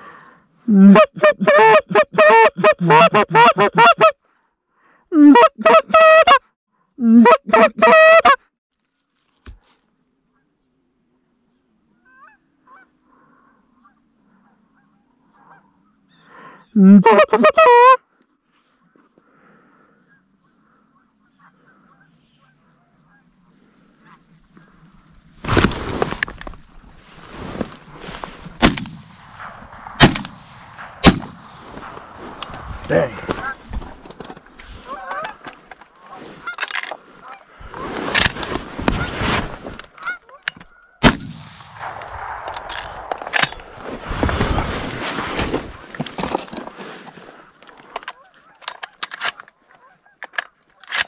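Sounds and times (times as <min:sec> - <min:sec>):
shotgun blast: 0:28.6 - 0:32.0, 0:41.0 - 0:43.8
distant geese honking: 0:31.8 - 0:33.7, 0:34.3 - 0:37.6.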